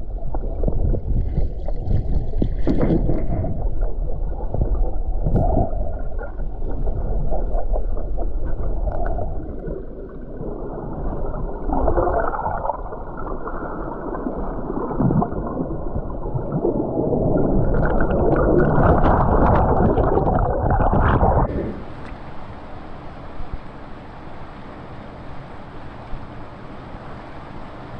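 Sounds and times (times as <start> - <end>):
underwater river current rushing: 0.0 - 27.9
knocks underwater: 0.2 - 9.4, 17.4 - 21.7
rushing river water hiss: 21.5 - 27.9.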